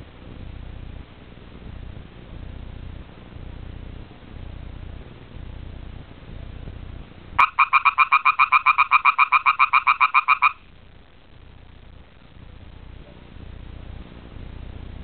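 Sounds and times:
frog trilling: 7.4 - 10.6.

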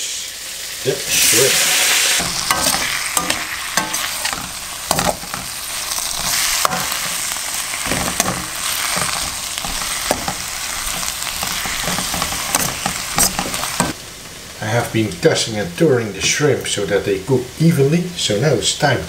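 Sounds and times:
food sizzling in hot oil: 0.0 - 19.0
metal spoon scraping wok: 1.1 - 14.0.

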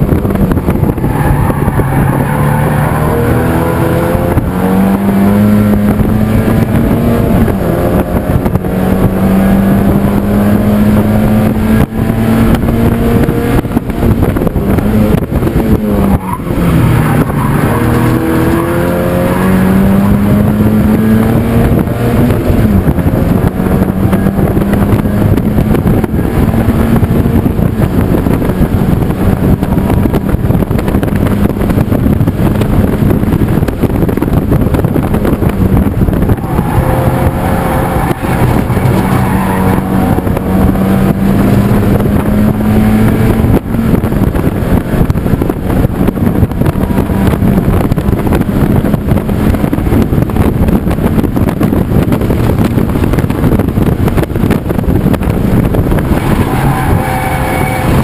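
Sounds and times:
constant rushing noise: 0.0 - 58.0
race car engine revving: 0.0 - 58.0.

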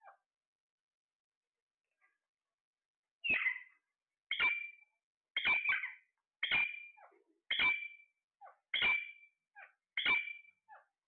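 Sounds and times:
soft chirps: 3.2 - 10.9
parakeets calling loudly: 5.4 - 6.9.

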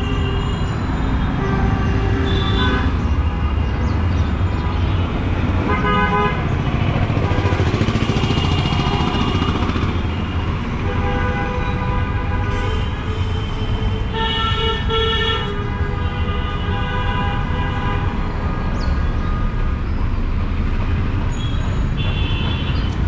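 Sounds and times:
vehicle horns honking: 0.0 - 3.0, 5.0 - 6.4, 7.4 - 18.3, 21.3 - 23.0
rumble of engines: 0.0 - 23.0.

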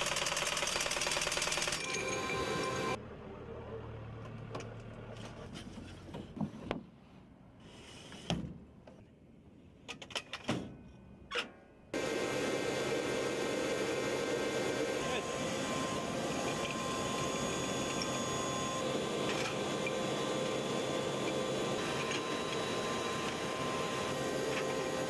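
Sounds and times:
loud mechanical noise with whine: 1.7 - 3.0, 12.0 - 25.0.

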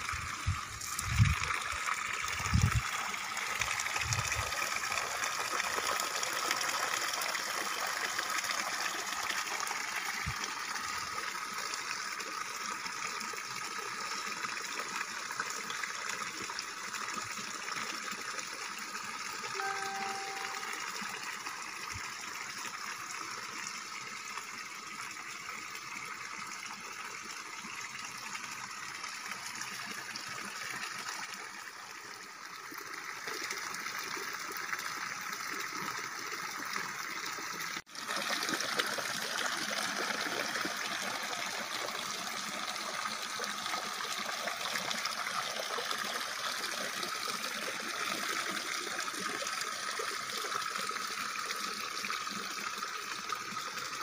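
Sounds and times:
water pouring and splashing: 0.0 - 20.8, 21.4 - 54.0.

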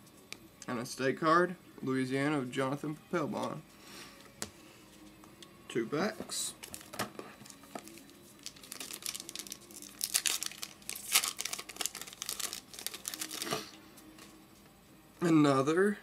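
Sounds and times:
foil wrapper crinkling and tearing: 7.8 - 13.7.

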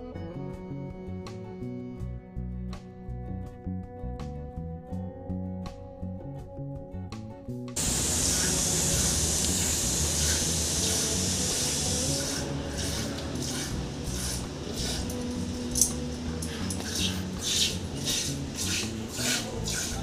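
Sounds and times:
acoustic guitar music: 7.8 - 20.0.

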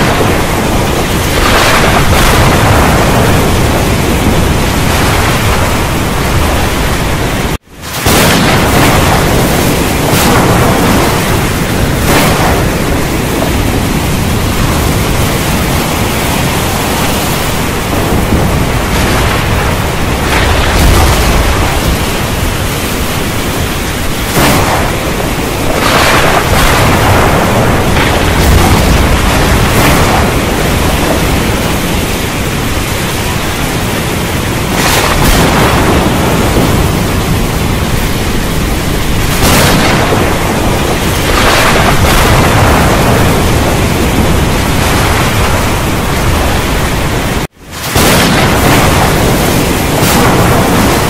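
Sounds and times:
heavy rain: 0.0 - 51.0
rolling thunder: 0.0 - 51.0.

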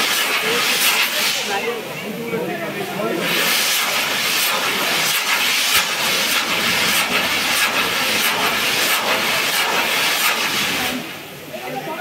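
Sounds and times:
firework fountains hissing: 0.0 - 12.0
firework pops and crackles: 3.4 - 11.0.

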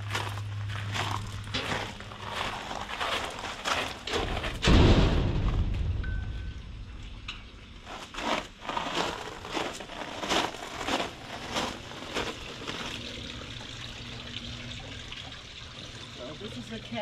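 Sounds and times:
footsteps crunching on gravel: 0.0 - 5.7, 7.8 - 13.2.

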